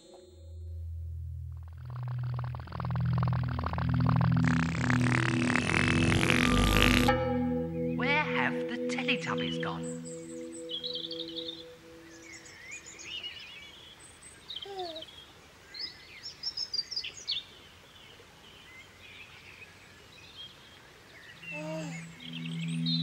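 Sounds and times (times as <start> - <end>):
held musical chord: 4.4 - 12.6, 21.5 - 23.0
songbirds chirping: 7.4 - 23.0.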